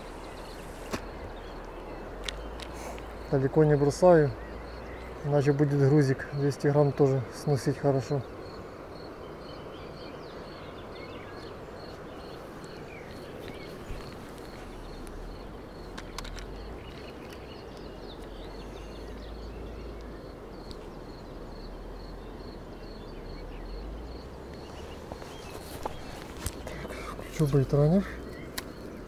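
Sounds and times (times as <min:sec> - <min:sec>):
even hiss: 0:00.0 - 0:01.5
small birds chirping: 0:00.0 - 0:29.0
light clicks of fishing rod: 0:00.6 - 0:03.2, 0:15.8 - 0:18.5, 0:28.3 - 0:28.9.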